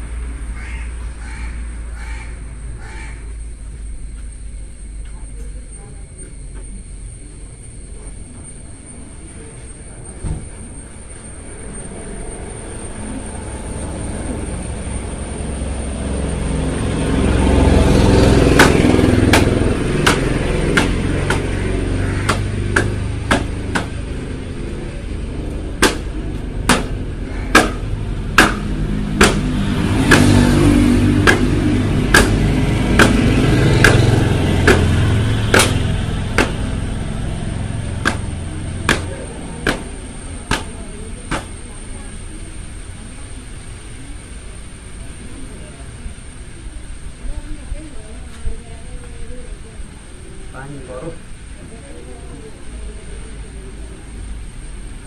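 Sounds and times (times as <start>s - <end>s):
sharp knocks: 18.5s - 24.0s, 25.8s - 36.8s, 37.9s - 41.6s.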